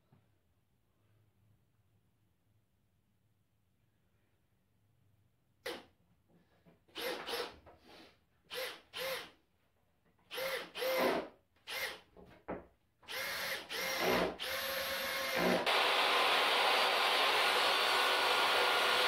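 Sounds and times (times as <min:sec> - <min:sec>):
cordless drill whining: 0:06.9 - 0:07.6, 0:08.5 - 0:09.3, 0:10.3 - 0:12.0, 0:13.1 - 0:19.0.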